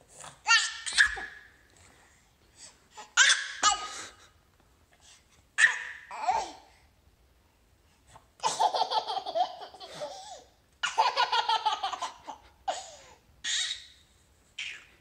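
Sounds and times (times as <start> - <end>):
baby laughing: 0.4 - 1.4, 3.0 - 4.1, 5.6 - 6.6, 8.4 - 13.8.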